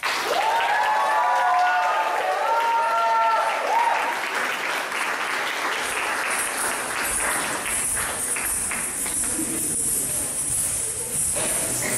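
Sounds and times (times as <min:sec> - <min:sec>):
audience applause: 0:00.0 - 0:10.0
dance music: 0:05.7 - 0:11.9.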